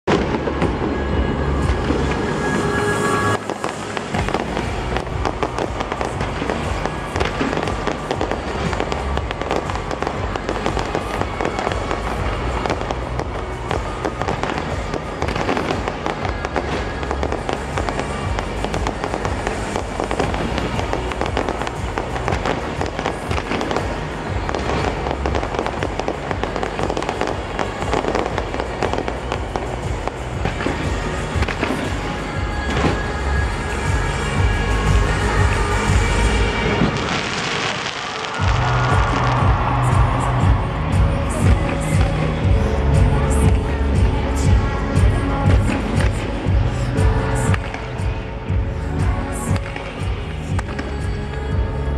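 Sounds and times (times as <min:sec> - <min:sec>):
fireworks launches and bangs: 0:00.1 - 0:33.1, 0:36.6 - 0:39.7.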